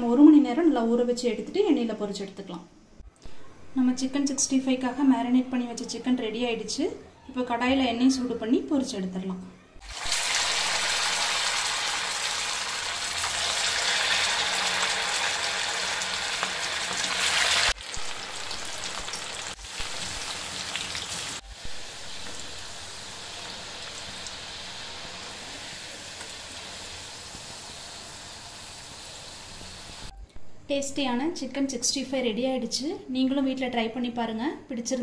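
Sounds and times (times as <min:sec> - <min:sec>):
chicken deep-frying in oil: 0:09.8 - 0:30.1.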